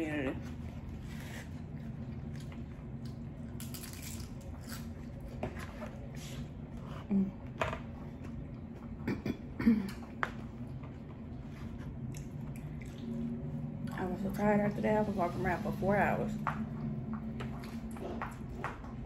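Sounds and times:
steady low hum: 0.0s - 19.0s
crisp crunching and wet chewing: 1.1s - 5.4s, 11.7s - 14.0s.

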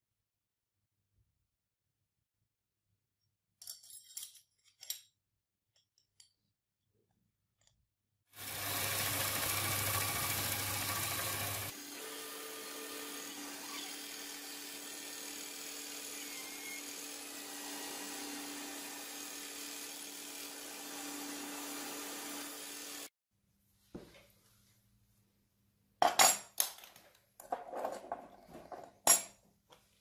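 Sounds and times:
belt sander grinding metal: 8.4s - 23.1s
rotary tool whine: 8.4s - 23.1s.

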